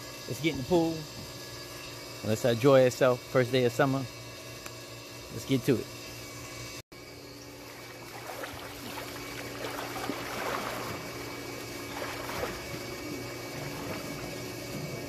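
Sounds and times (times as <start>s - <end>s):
steady low hum: 0.0s - 15.0s
pool water splashing: 7.6s - 15.0s.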